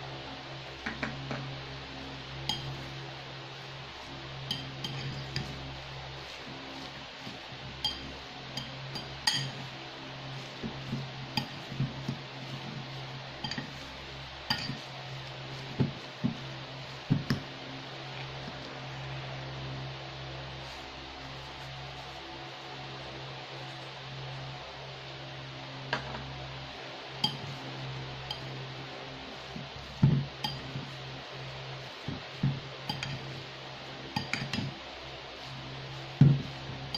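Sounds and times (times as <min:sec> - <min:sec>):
fork scraping and squishing mixture: 0:02.4 - 0:03.0, 0:03.8 - 0:18.7, 0:27.2 - 0:27.6, 0:28.2 - 0:36.9
fork clinking on ceramic bowl: 0:02.5 - 0:02.8, 0:04.5 - 0:05.5, 0:07.8 - 0:09.6, 0:14.5 - 0:14.8, 0:32.9 - 0:33.2.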